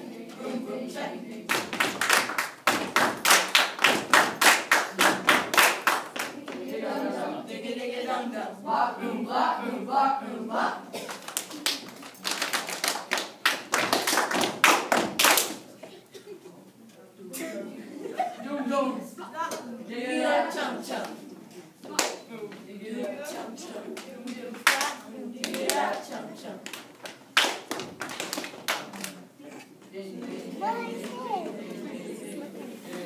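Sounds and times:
children clapping and slapping: 1.5 - 6.6, 11.0 - 15.7, 21.8 - 22.3, 24.0 - 29.2
children's voices in unison: 30.0 - 33.0.

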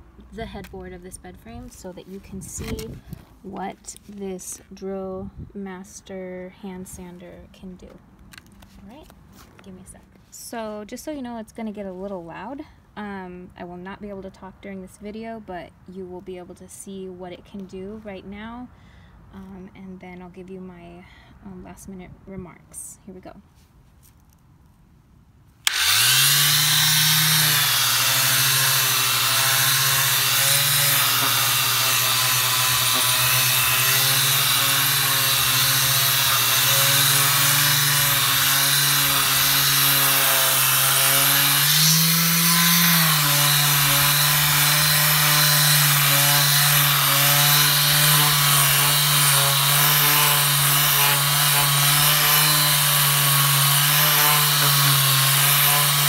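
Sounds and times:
orbital sander motor hum: 25.6 - 56.0
sandpaper rubbing on wood: 26.3 - 56.0.

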